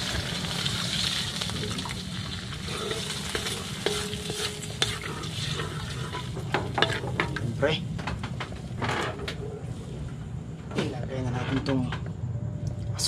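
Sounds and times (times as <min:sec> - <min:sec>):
garlic and onion sizzling in a pan: 0:00.0 - 0:07.5.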